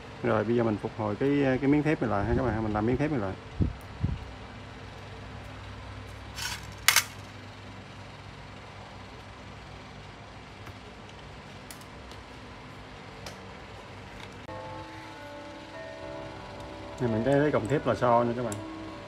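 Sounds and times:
steady low hum: 0.0s - 19.0s
metal parts clinking into bowl: 6.3s - 7.2s.

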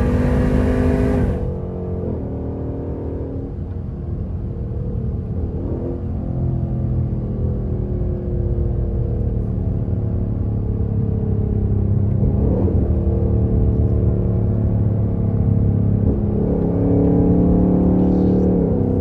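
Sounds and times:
car exhaust drone in cabin: 7.0s - 19.0s.

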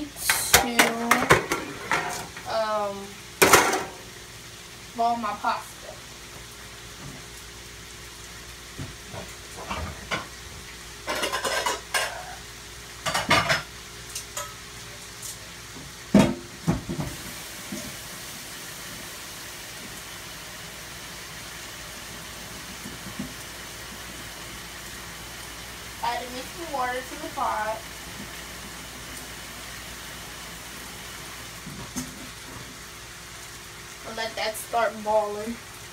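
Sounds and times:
chicken sizzling in skillet: 0.0s - 35.9s
pots and pans clanking: 0.2s - 2.5s, 3.4s - 4.0s, 8.8s - 10.4s, 11.0s - 12.3s, 13.0s - 14.6s, 16.1s - 18.0s.

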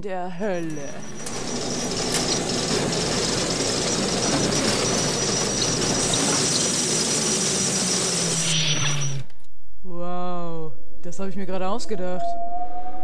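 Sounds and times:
stone and metal mechanism grinding: 0.6s - 9.3s.

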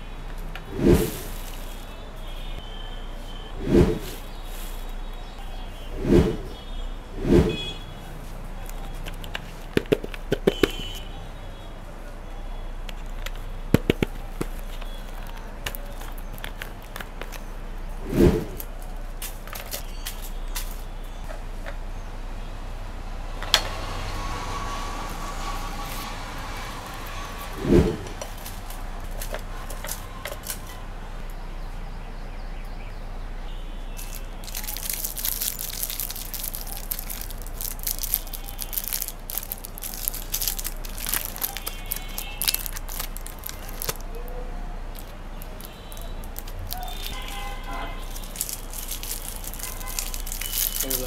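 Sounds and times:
foil wrappers crinkling: 13.0s - 17.6s, 34.0s - 44.2s, 44.9s - 51.0s.

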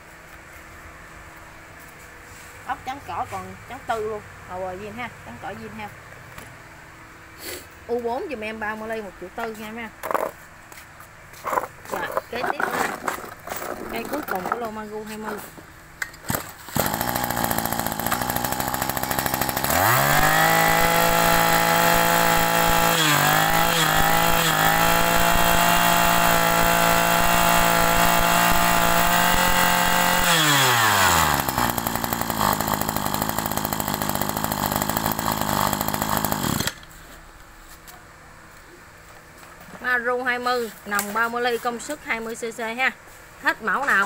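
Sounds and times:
brush cutter engine revving: 10.0s - 10.3s, 11.4s - 15.4s, 16.2s - 36.9s.

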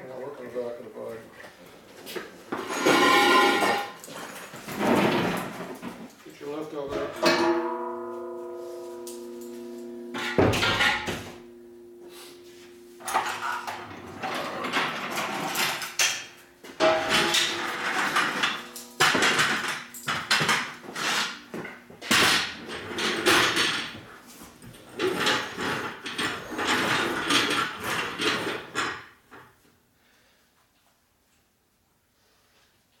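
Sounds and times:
shop equipment clanking and scraping: 2.1s - 6.2s, 6.8s - 11.5s, 12.1s - 29.1s.

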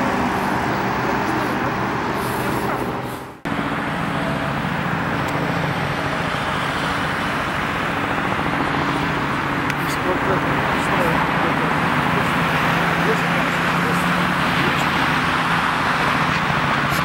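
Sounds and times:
helicopter engine and rotor drone: 2.8s - 17.0s.

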